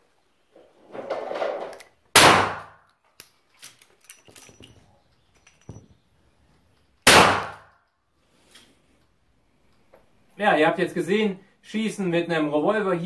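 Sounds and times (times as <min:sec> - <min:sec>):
brass cases clinking: 0:03.4 - 0:07.0.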